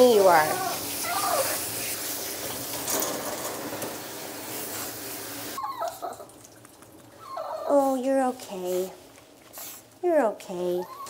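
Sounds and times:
water spraying from hose: 0.0s - 5.6s
dog whimpering: 0.2s - 1.6s, 5.6s - 6.3s, 7.2s - 8.0s, 10.6s - 11.0s.

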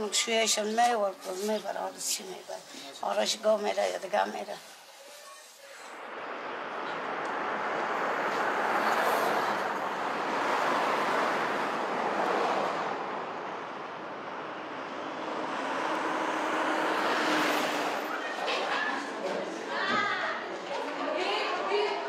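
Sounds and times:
vehicles passing by: 5.6s - 22.0s.

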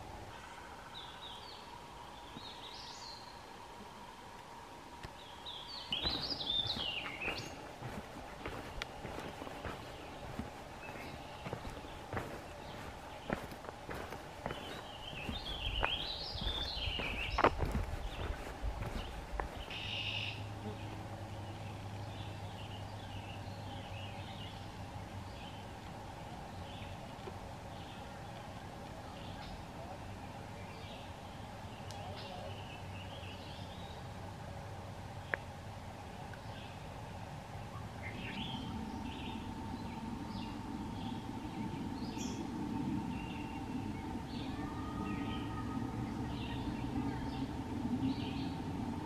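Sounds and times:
steady low hum: 0.0s - 49.0s
faint bird calls: 5.2s - 21.6s
low rumble: 5.9s - 21.4s.

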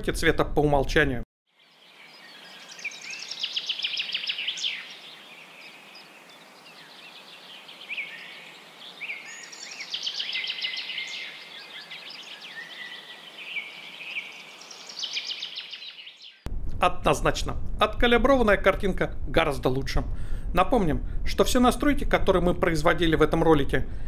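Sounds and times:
birds singing: 1.5s - 16.5s.

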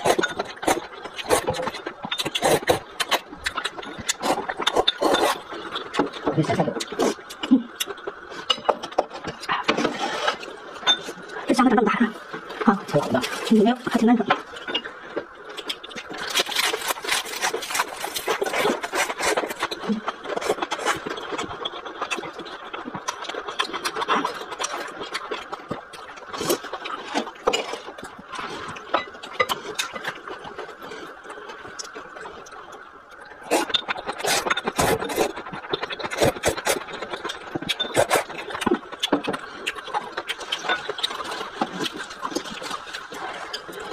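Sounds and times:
slurping liquid: 0.0s - 8.4s, 15.7s - 28.9s, 33.2s - 43.9s
crunchy chewing: 0.0s - 8.5s, 14.4s - 43.9s.

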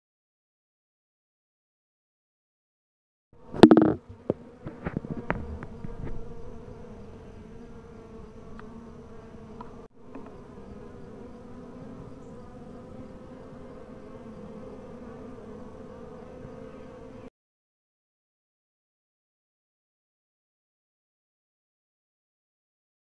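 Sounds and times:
bees humming: 3.4s - 17.3s
knocks and taps: 3.6s - 4.0s.

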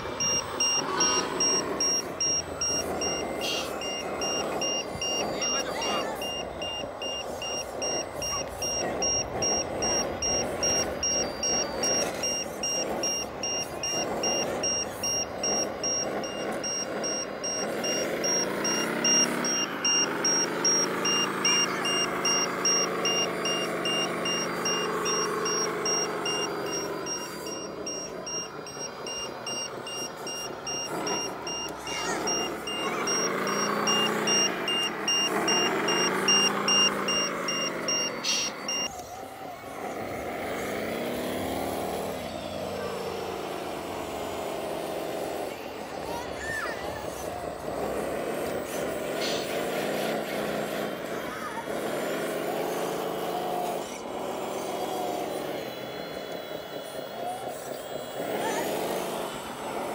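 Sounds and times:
high pulsing beep: 0.0s - 39.0s
model loader engine revving: 0.0s - 59.9s.

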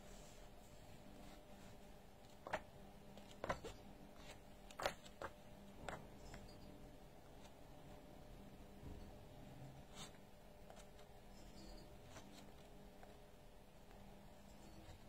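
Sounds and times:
book pages flipping: 1.2s - 6.5s.

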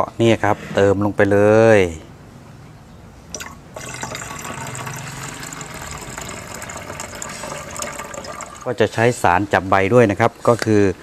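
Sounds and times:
liquid pouring into bottle: 3.4s - 8.8s.

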